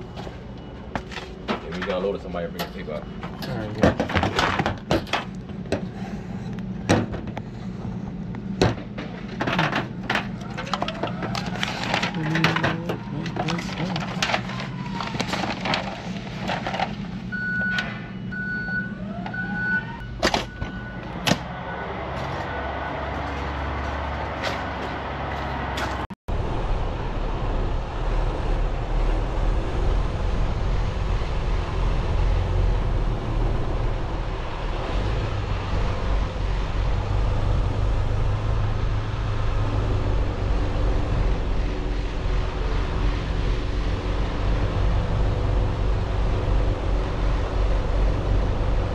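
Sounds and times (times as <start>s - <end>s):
low engine rumble: 0.0s - 48.9s
truck engine running: 0.0s - 48.9s
reversing alarm beeping: 17.3s - 23.0s.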